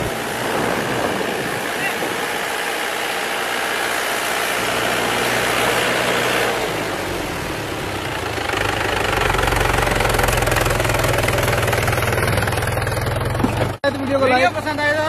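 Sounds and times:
tractor diesel engine labouring: 0.0 - 15.0.

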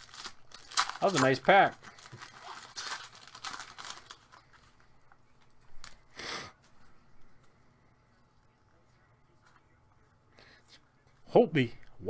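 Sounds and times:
foil wrapper crinkling and tearing: 0.0 - 4.7
wrapper and cards rustling: 0.0 - 6.0.

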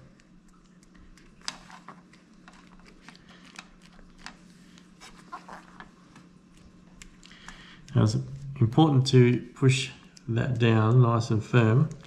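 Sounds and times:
fingers clicking and rustling plastic: 0.0 - 8.0
low steady hum: 0.0 - 12.0.

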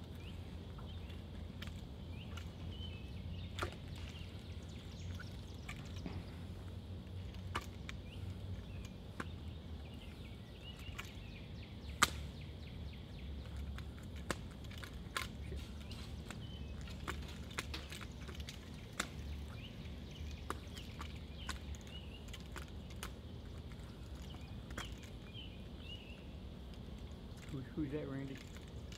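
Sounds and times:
small birds chirping: 0.0 - 28.9.

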